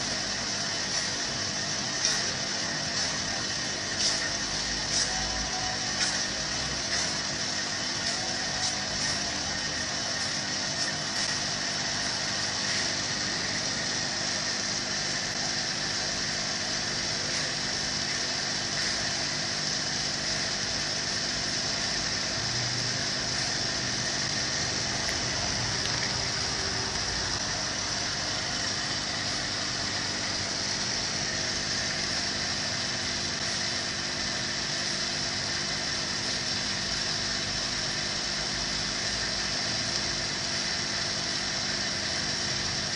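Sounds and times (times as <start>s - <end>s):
aquarium pump humming: 0.0s - 42.9s.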